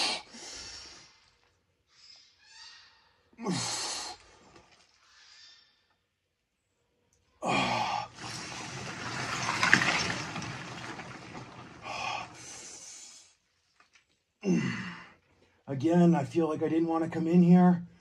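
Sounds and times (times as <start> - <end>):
ice water sloshing and splashing: 8.1 - 12.8
breath out: 14.4 - 15.6.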